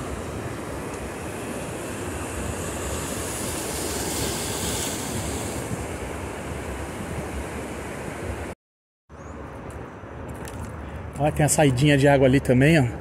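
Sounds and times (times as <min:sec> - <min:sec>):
wind buffeting microphone: 0:00.0 - 0:08.5
sea waves breaking: 0:00.0 - 0:08.6.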